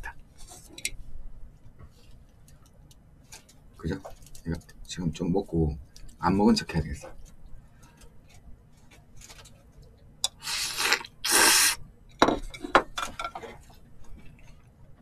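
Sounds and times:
noodles slurped: 10.3s - 11.8s.

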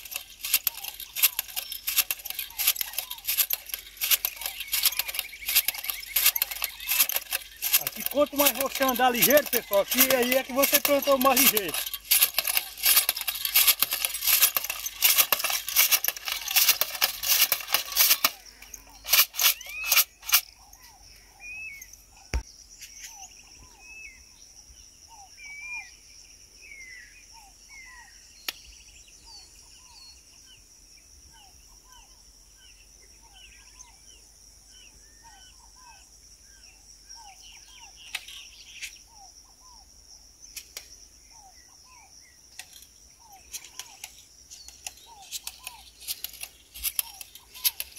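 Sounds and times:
hand planter rattling metal clicks: 0.0s - 20.6s, 42.6s - 47.9s
sharp clicks: 0.0s - 20.6s, 42.5s - 47.9s
birds chirping: 0.0s - 26.0s, 36.6s - 47.9s.

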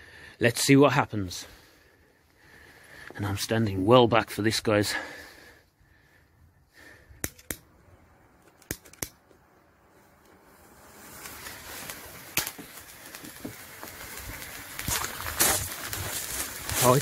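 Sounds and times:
sharp clicks: 8.4s - 9.2s
black powder burning with a hiss: 9.9s - 17.0s
sharp crackle: 10.0s - 17.0s.

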